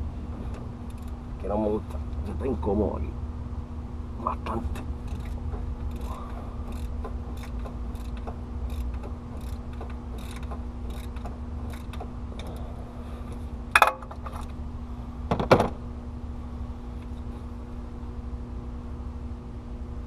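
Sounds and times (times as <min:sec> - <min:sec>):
steady low hum: 0:00.0 - 0:20.0
metallic clanks: 0:04.7 - 0:12.6, 0:13.7 - 0:14.5
socket ratchet clicking: 0:06.7 - 0:12.5.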